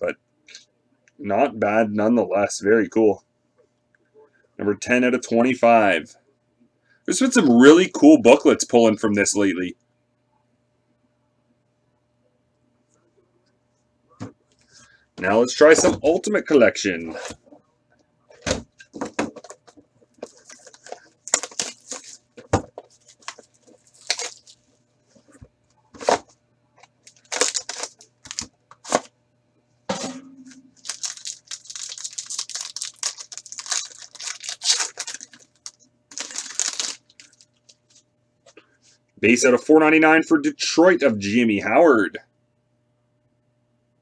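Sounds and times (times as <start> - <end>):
plastic wrap tearing and crinkling: 18.8 - 24.6, 27.0 - 29.1, 30.7 - 38.0.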